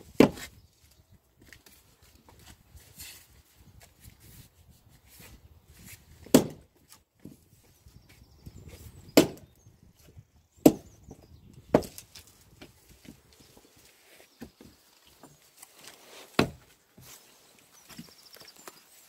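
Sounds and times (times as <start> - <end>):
splitting maul chopping wood: 0.1 - 0.5, 6.2 - 6.6, 9.1 - 9.5, 10.6 - 10.9, 11.7 - 12.1, 16.4 - 16.6.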